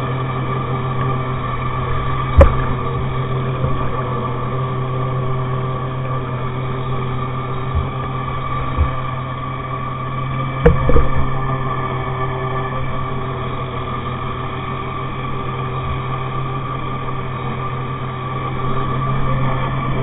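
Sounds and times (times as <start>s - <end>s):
steady mechanical hum: 0.0s - 20.0s
soft thumps: 2.4s - 2.8s, 8.7s - 9.1s, 10.6s - 11.3s.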